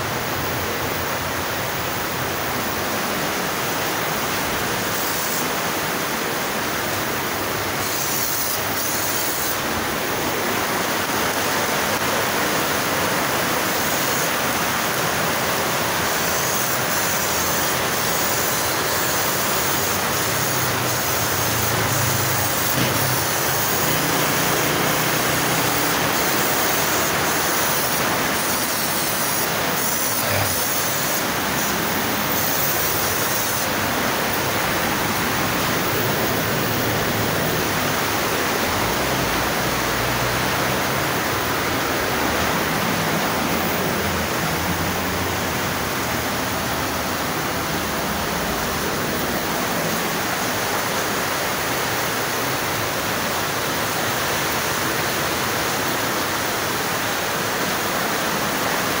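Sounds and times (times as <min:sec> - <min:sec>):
spray gun hissing: 0:01.6 - 0:12.2, 0:12.8 - 0:39.2.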